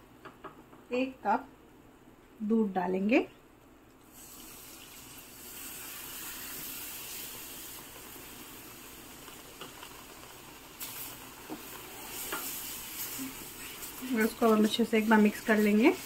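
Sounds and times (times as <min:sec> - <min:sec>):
milk sizzling in a hot pan: 0:04.0 - 0:16.0.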